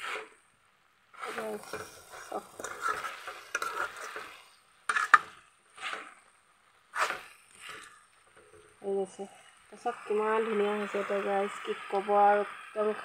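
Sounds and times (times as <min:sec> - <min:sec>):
spatula scraping a metal pan: 0:01.2 - 0:06.2, 0:06.9 - 0:08.8.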